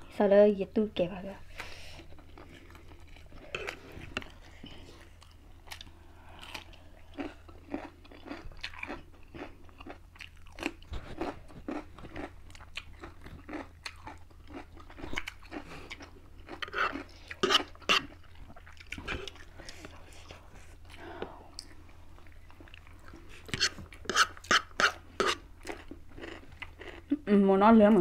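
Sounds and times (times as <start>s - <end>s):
noodles being chewed: 1.5s - 27.2s.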